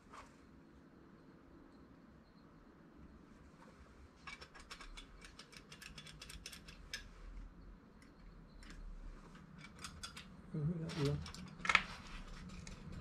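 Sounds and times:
small metallic clicks: 0:04.2 - 0:07.2, 0:08.0 - 0:13.0.

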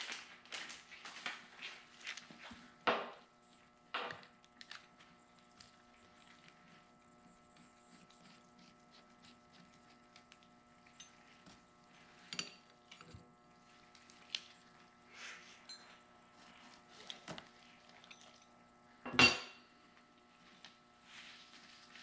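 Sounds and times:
faint steady hum: 0:00.0 - 0:22.0
metal tools clinking on workbench: 0:19.1 - 0:19.6
ringing metal clank: 0:19.1 - 0:19.6.

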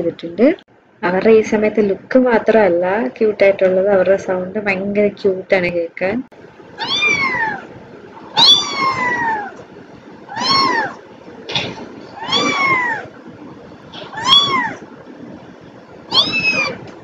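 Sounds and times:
kittens mewing: 0:06.8 - 0:09.6, 0:10.3 - 0:15.0, 0:16.0 - 0:17.0.

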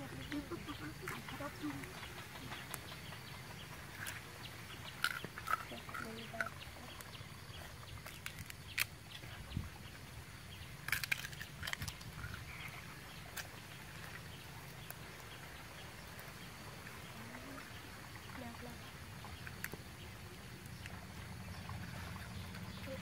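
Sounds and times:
outdoor background: 0:00.0 - 0:23.0
crab shells cracking: 0:03.9 - 0:07.1, 0:08.0 - 0:09.0, 0:10.8 - 0:13.6.

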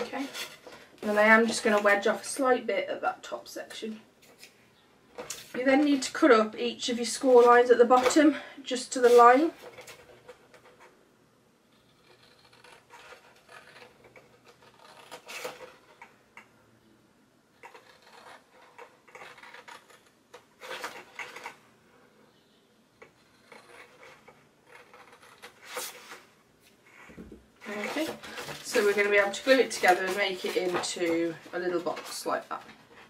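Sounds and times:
paper rustling: 0:27.6 - 0:33.0.

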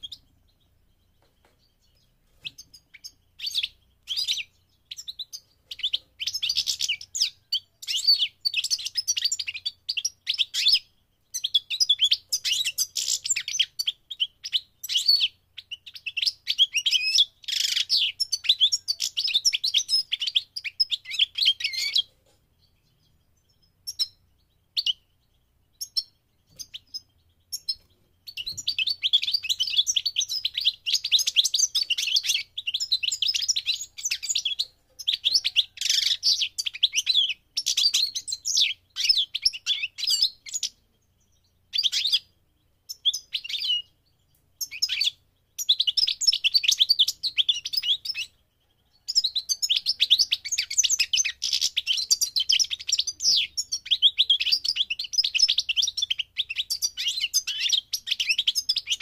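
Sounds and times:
goldfinch singing: 0:00.0 - 0:59.0.

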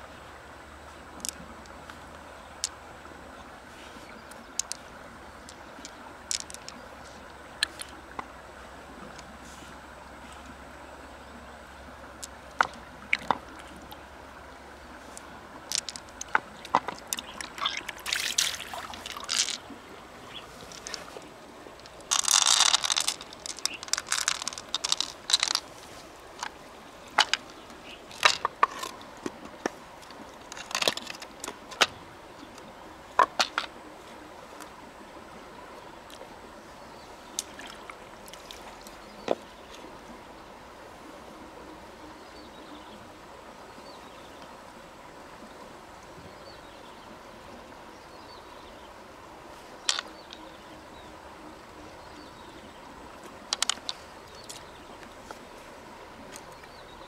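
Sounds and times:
water splashing: 0:11.9 - 0:32.5, 0:37.2 - 0:39.9
shells clicking and knocking: 0:22.0 - 0:25.7.

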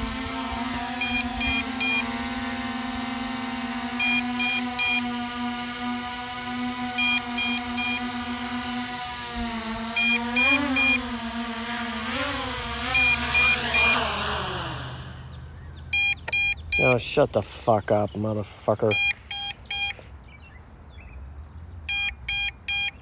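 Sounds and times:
drone motors humming: 0:00.0 - 0:20.1
quick high beeps: 0:12.9 - 0:14.1, 0:15.9 - 0:16.9, 0:18.9 - 0:20.0, 0:21.9 - 0:23.0.

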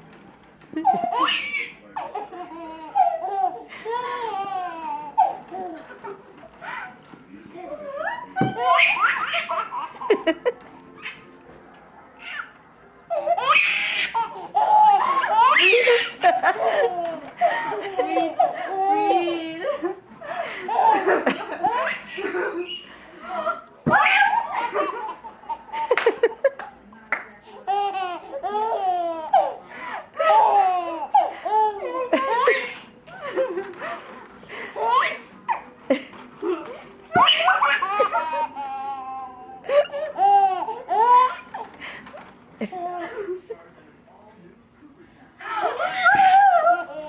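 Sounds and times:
baby laughing: 0:00.8 - 0:05.8, 0:07.6 - 0:10.3, 0:13.1 - 0:19.1, 0:23.9 - 0:26.1, 0:30.2 - 0:32.9, 0:34.8 - 0:35.6, 0:37.1 - 0:41.8, 0:45.7 - 0:47.0.

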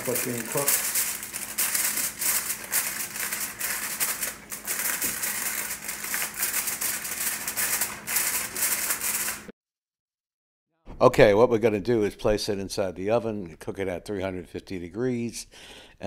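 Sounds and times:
aluminum foil crinkling: 0:00.0 - 0:09.5.

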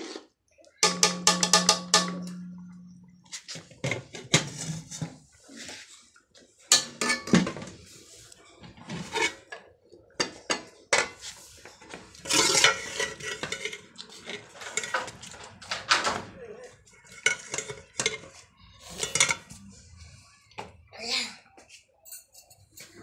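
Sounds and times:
metal spoon scraping cooking pots: 0:00.0 - 0:05.9, 0:06.7 - 0:07.9, 0:08.8 - 0:16.2, 0:16.9 - 0:19.7.

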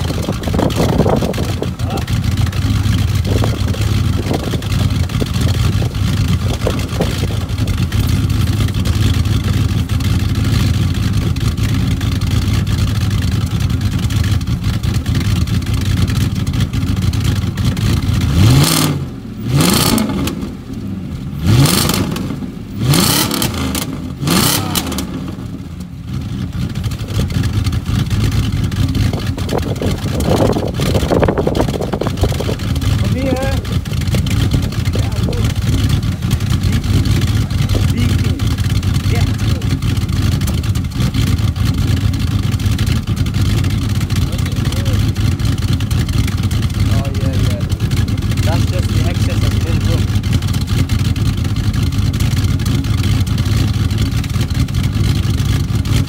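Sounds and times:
car exhaust idling: 0:00.0 - 0:56.0
engine revving sharply: 0:18.3 - 0:20.6, 0:21.4 - 0:25.6.

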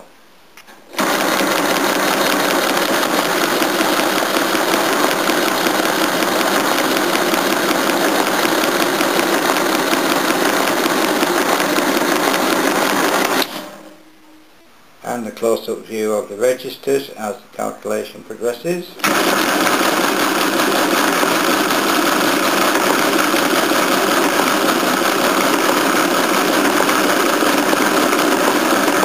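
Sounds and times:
mechanical calculator clattering: 0:01.0 - 0:13.5, 0:19.0 - 0:29.0.

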